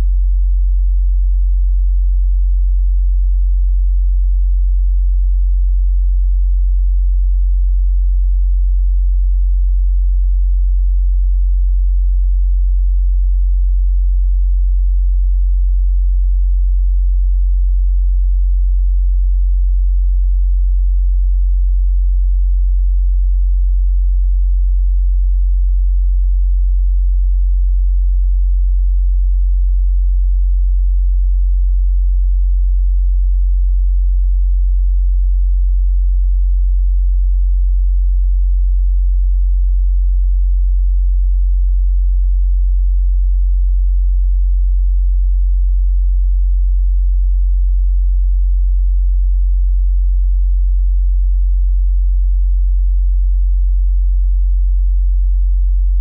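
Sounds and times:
very low electronic sine tone: 0:00.0 - 0:40.6, 0:43.4 - 0:45.8, 0:55.6 - 0:56.0.

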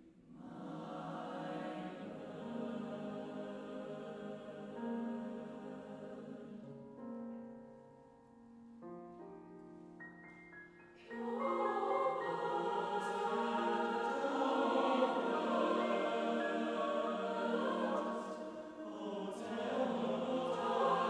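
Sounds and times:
mixed choir singing held chords: 0:00.3 - 0:07.0, 0:11.0 - 0:21.0.

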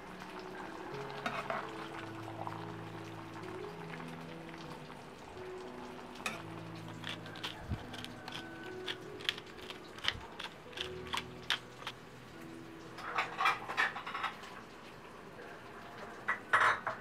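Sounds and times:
pepper mill grinding clicks: 0:06.9 - 0:12.0.

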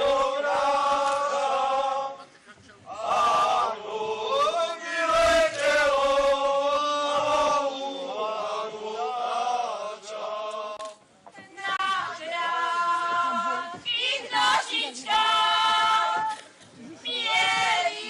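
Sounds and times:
men singing unaccompanied: 0:00.0 - 0:02.2, 0:02.9 - 0:10.9.

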